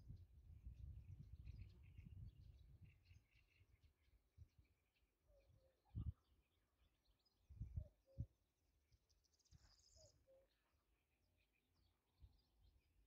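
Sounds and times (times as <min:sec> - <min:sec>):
wind bumps on microphone: 0:00.0 - 0:02.9.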